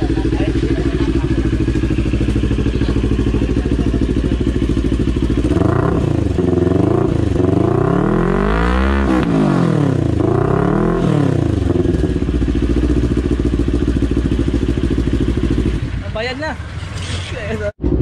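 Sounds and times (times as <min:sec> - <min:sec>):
motorcycle engine idling and revving: 0:00.0 - 0:18.0.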